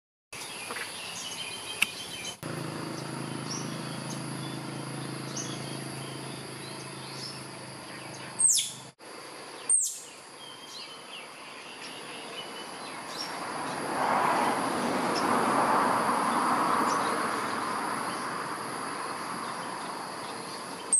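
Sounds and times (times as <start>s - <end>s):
high insect buzz: 0.4s - 20.9s
small bird chirps: 3.0s - 8.9s, 9.6s - 13.8s.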